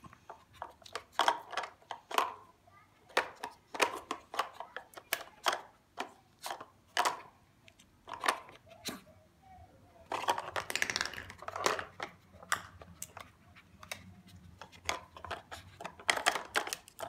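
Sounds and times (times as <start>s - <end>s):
plastic toy clicking and clattering: 0.3s - 8.8s, 10.1s - 17.0s.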